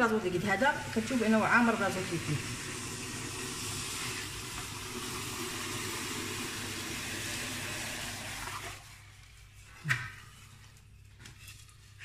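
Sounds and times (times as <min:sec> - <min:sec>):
liquid nitrogen boiling hiss: 0:00.6 - 0:09.4.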